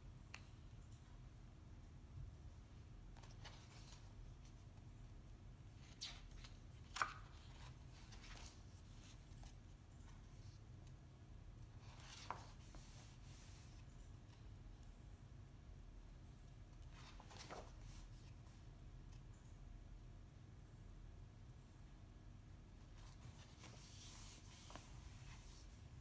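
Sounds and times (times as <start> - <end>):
faint low room hum: 0.0 - 26.0
book pages turning: 3.1 - 4.6, 5.8 - 10.6, 11.8 - 13.9, 16.8 - 18.5, 23.0 - 25.8.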